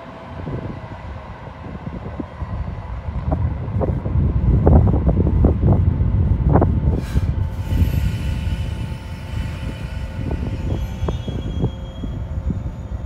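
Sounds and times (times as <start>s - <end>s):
train rumbling: 0.0s - 13.0s.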